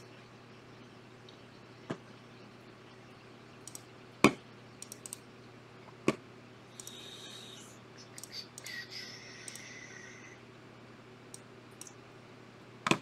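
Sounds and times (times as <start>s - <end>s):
computer mouse and keyboard clicks: 3.6s - 3.9s, 4.8s - 5.2s, 6.8s - 7.0s.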